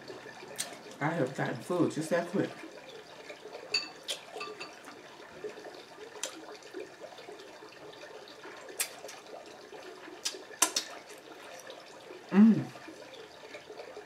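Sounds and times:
wet smacks and clicks: 0:08.8 - 0:09.2, 0:10.2 - 0:11.0.

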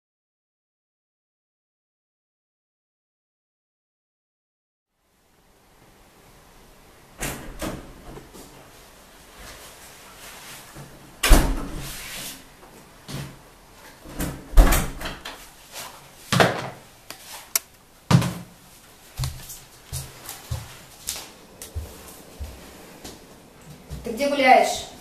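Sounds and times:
door shutting with a thud: 0:11.2 - 0:11.9, 0:14.1 - 0:15.3.

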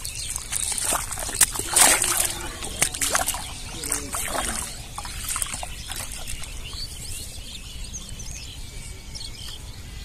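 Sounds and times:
water drips and splashes: 0:00.0 - 0:07.0
small birds chirping: 0:00.0 - 0:10.0.

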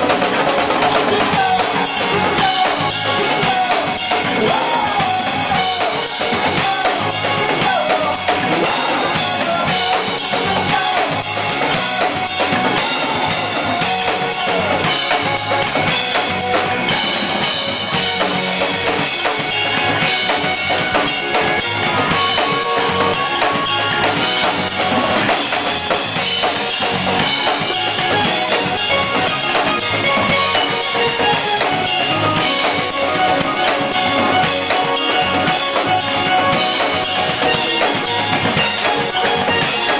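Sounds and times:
live band playing: 0:00.0 - 0:39.9.

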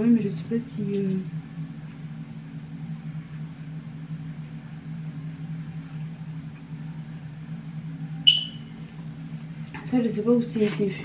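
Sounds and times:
steady low hum: 0:00.0 - 0:11.0
sharp ringing click: 0:08.3 - 0:08.7.

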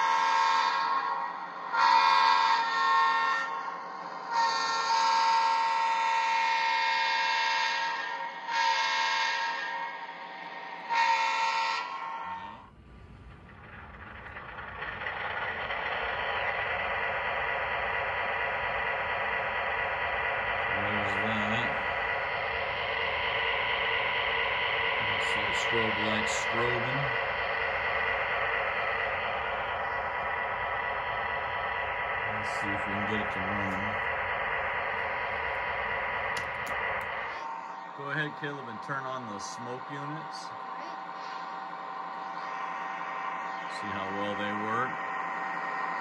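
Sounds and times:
model train air horn blasts: 0:00.0 - 0:00.9, 0:01.7 - 0:03.5, 0:04.3 - 0:09.7, 0:10.8 - 0:12.6
diesel engine running sound: 0:12.2 - 0:46.0.

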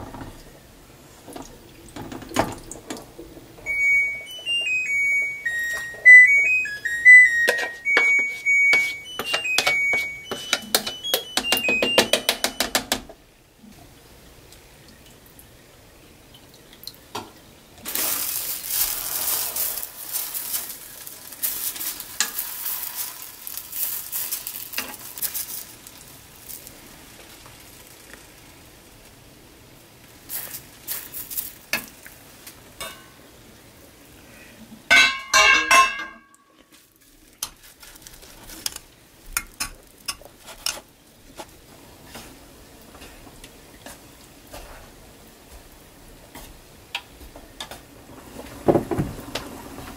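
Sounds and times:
chopsticks tapping and clicking: 0:07.4 - 0:13.1
ribs sizzling in a saucepan: 0:17.8 - 0:34.0.

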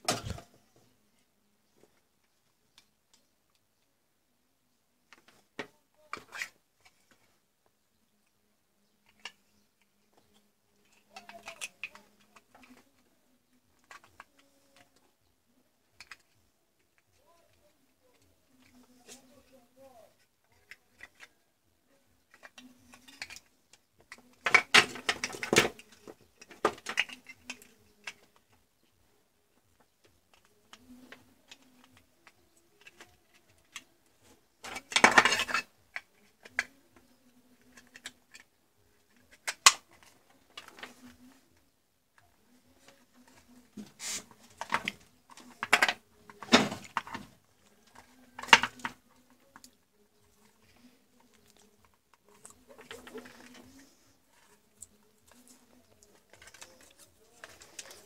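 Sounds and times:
plastic clicking and rattling: 0:09.0 - 0:15.2, 0:15.8 - 0:21.4, 0:22.2 - 0:28.9, 0:29.5 - 0:58.0
plastic adapter knocks and rustles: 0:42.9 - 0:49.7.

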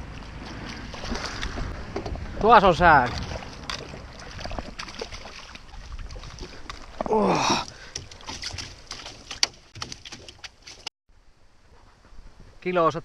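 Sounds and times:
water splashing and dripping: 0:00.0 - 0:10.9
short vocal sound: 0:07.1 - 0:07.7.

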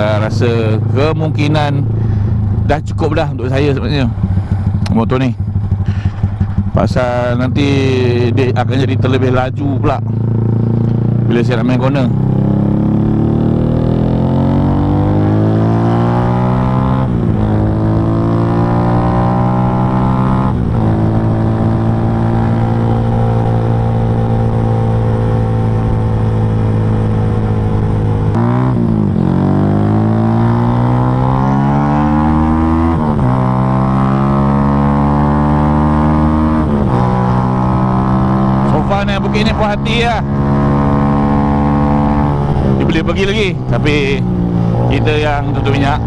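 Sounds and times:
motorcycle engine revving: 0:00.0 - 0:46.0.

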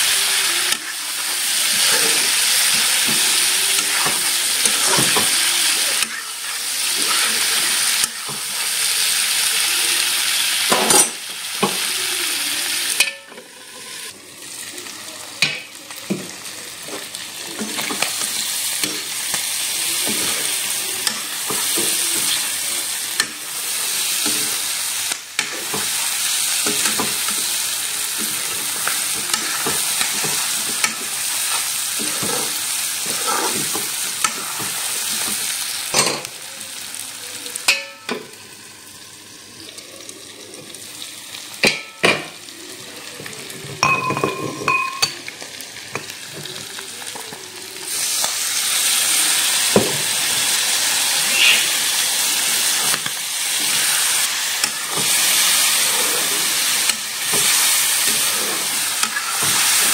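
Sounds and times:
chicken sizzling in a wok: 0:00.0 - 0:59.9
spoon scraping a pan: 0:28.1 - 0:35.4, 0:51.2 - 0:59.9.

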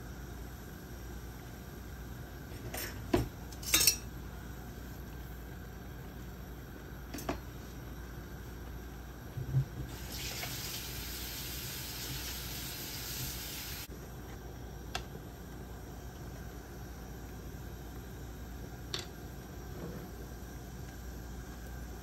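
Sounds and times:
cookware clinking: 0:03.6 - 0:04.1
kitchen tap running: 0:09.9 - 0:13.9.

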